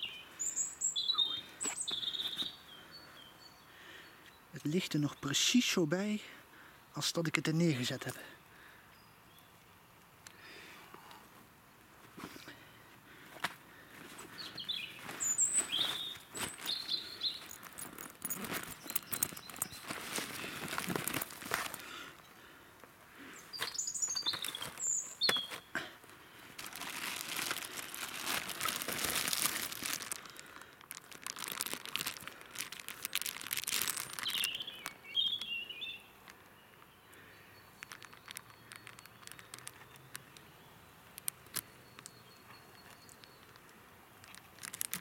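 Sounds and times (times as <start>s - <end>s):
small bird chirping: 0.0s - 4.5s, 14.3s - 17.6s, 18.2s - 20.6s, 23.4s - 25.7s, 33.0s - 43.8s
plastic bag crinkling: 15.1s - 22.0s, 24.1s - 25.2s, 26.5s - 35.0s, 37.8s - 40.4s, 43.1s - 45.0s.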